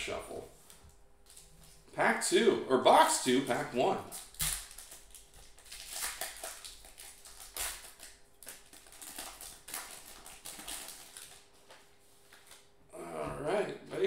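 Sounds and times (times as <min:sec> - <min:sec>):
foil wrapper crinkling and tearing: 0:04.1 - 0:12.7.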